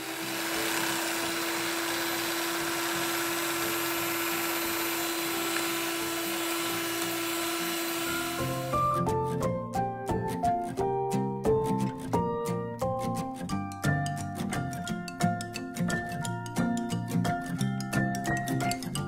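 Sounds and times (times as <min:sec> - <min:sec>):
electric hand mixer whisking: 0:00.0 - 0:09.0.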